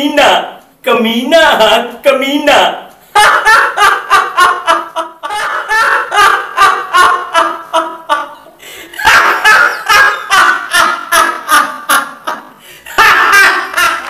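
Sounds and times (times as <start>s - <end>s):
man laughing loudly: 3.1s - 14.0s.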